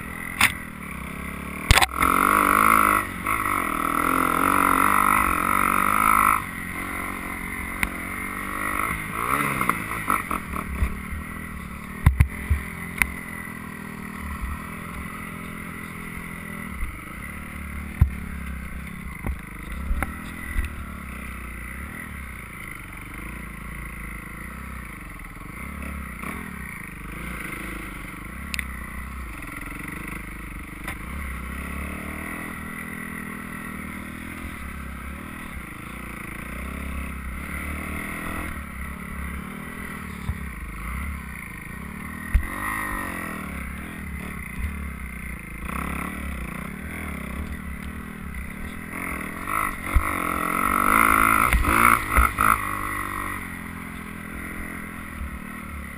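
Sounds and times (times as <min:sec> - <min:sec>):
dirt bike engine revving: 0:00.0 - 0:55.9.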